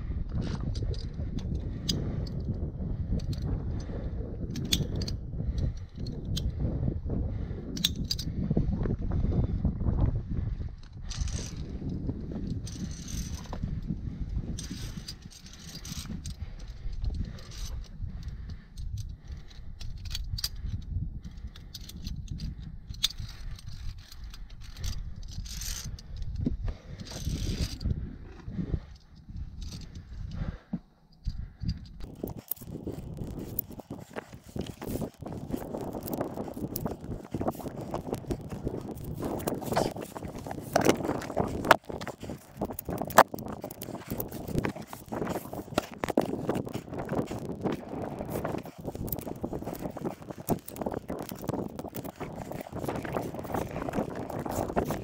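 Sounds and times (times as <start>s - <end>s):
steady low rumble: 0.0s - 55.0s
metal climbing gear clicking and jangling: 0.5s - 6.6s, 7.7s - 8.4s, 10.8s - 30.5s, 31.1s - 55.0s
metal carabiners clinking: 4.4s - 6.5s, 11.1s - 13.9s, 14.5s - 28.0s, 28.8s - 30.4s, 31.1s - 55.0s.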